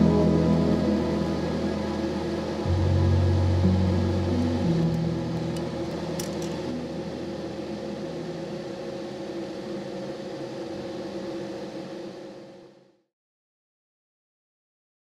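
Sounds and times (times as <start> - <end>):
ambient synth chord: 0.0 - 9.1.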